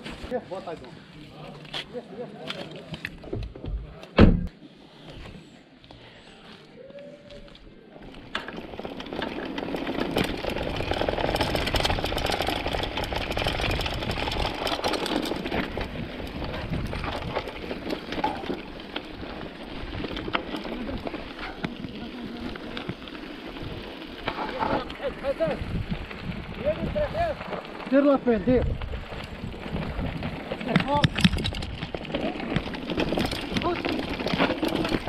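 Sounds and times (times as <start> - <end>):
tyres on dirt and gravel: 0.0 - 4.6, 7.3 - 35.0
bike clattering over bumps: 8.1 - 35.0
wind on microphone: 25.5 - 27.4, 28.4 - 31.9.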